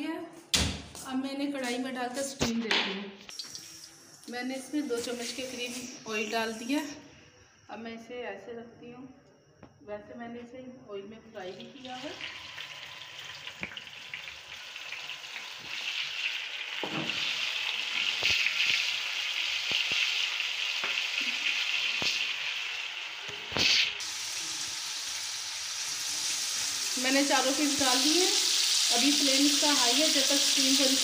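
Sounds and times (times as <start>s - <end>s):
chicken sizzling in hot oil: 11.6s - 31.0s.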